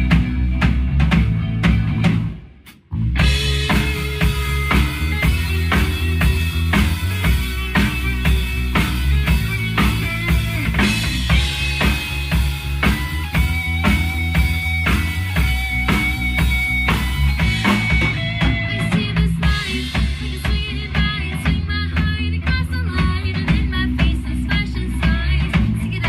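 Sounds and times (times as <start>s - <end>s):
drum kit steady beat: 0.0s - 26.0s
electric bass: 0.0s - 26.0s
electric guitar sustained notes: 3.2s - 20.2s.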